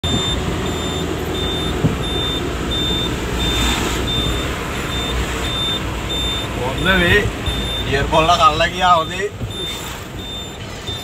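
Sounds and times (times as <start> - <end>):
engine running: 0.0 - 8.1
vehicle warning beeper: 0.0 - 11.0.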